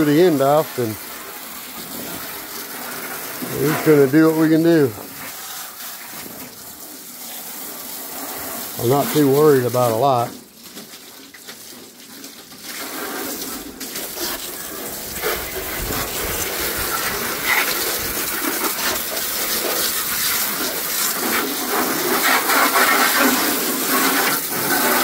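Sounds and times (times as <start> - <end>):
hose water spraying: 0.0 - 25.0.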